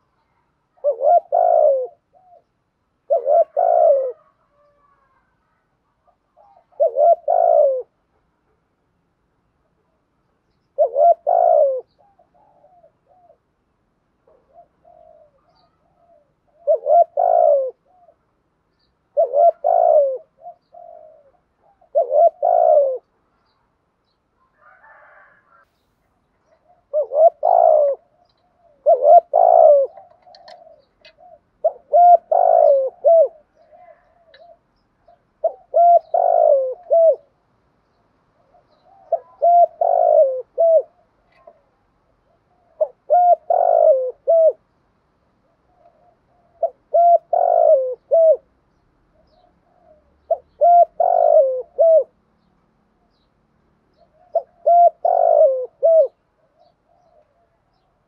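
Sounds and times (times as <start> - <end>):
dove cooing: 0.0 - 8.3, 9.6 - 13.6, 14.2 - 18.4, 19.0 - 23.2, 24.4 - 25.7, 26.4 - 44.7, 45.3 - 52.2, 53.9 - 58.0.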